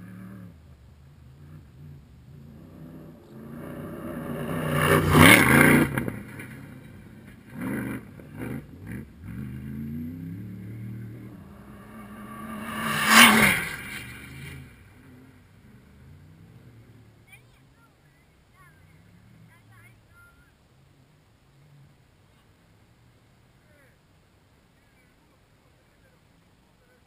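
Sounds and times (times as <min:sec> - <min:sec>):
rally cars passing at speed: 0:00.0 - 0:19.8.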